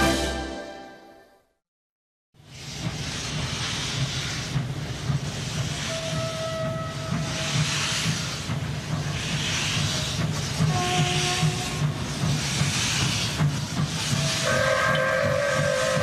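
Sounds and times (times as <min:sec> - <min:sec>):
steam locomotive hissing: 0:02.4 - 0:16.0
faint train whistle: 0:05.8 - 0:07.7, 0:10.6 - 0:11.8, 0:14.1 - 0:16.0.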